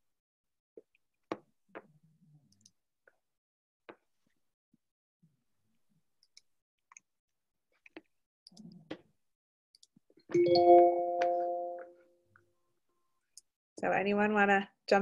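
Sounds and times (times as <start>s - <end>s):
chime chord ringing: 10.4s - 12.0s.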